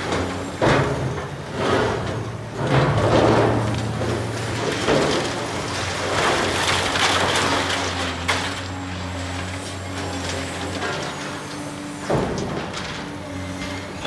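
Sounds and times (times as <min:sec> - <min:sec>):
bucket scraping concrete rubble: 0:00.0 - 0:14.0
excavator diesel engine running: 0:00.0 - 0:14.0.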